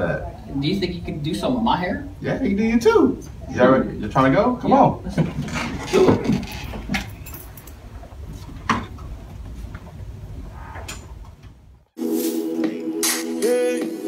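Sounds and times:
people shuffling and footsteps: 5.1 - 11.6
music: 12.0 - 14.0.

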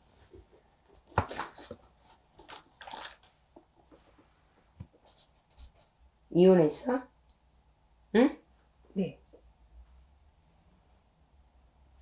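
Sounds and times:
book pages turning: 1.0 - 4.2.

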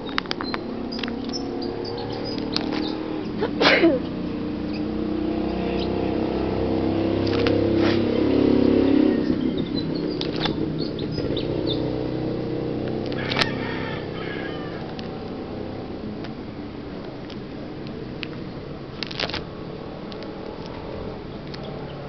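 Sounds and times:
plastic binder pages rustling: 0.0 - 1.4, 2.1 - 3.0, 7.2 - 8.0, 10.0 - 10.6, 12.8 - 13.5, 16.1 - 21.7
sharp clicks: 0.0 - 3.4, 7.2 - 8.0, 9.2 - 11.8, 12.8 - 13.6, 14.8 - 15.4, 16.1 - 21.9
steady low hum: 0.0 - 22.0.

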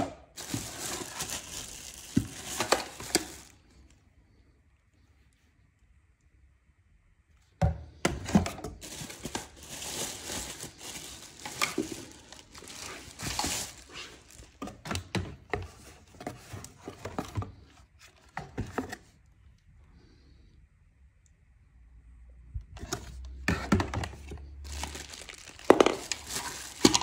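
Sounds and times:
plastic packaging crinkling: 0.0 - 3.9, 8.2 - 17.2, 23.8 - 27.0
plastic parts knocking: 22.9 - 27.0.

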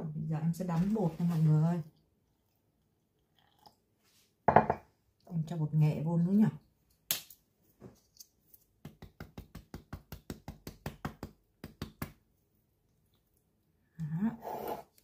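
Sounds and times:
person's voice: 0.0 - 1.9.

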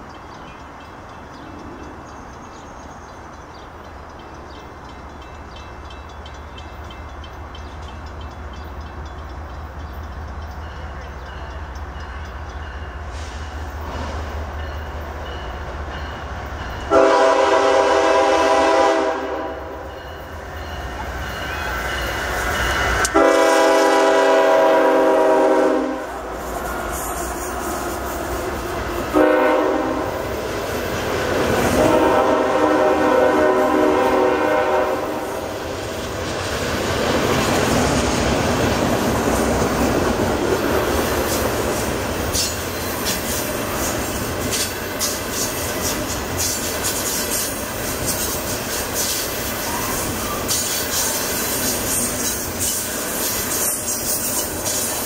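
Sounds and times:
diesel locomotive rumbling: 0.0 - 55.0
freight cars rolling past: 0.0 - 55.0
locomotive air horn blasts: 16.9 - 19.8, 23.0 - 26.2, 29.1 - 30.2, 31.7 - 35.5.

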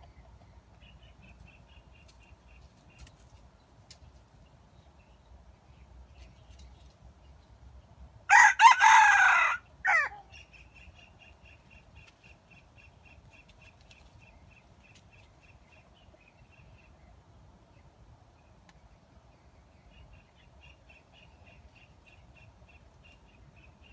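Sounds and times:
rooster crowing: 8.3 - 10.2.

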